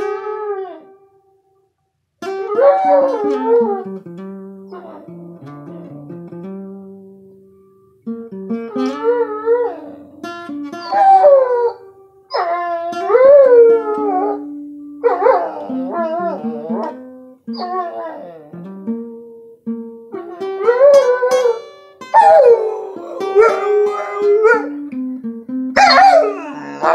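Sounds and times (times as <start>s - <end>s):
plucked guitar blues: 0.0s - 1.0s, 2.2s - 26.9s
dog howling: 2.6s - 3.9s, 15.1s - 16.9s, 22.2s - 24.8s, 25.8s - 26.9s.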